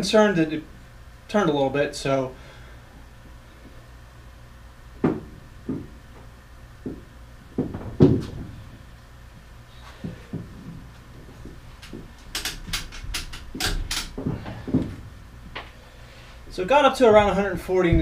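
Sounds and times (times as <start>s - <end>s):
wood knocking and creaking: 5.0s - 8.8s, 10.0s - 15.7s, 17.0s - 18.0s.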